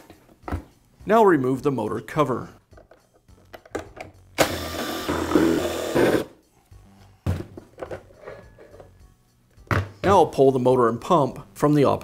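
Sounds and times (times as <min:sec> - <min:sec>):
cordless drill running: 0:04.4 - 0:06.3.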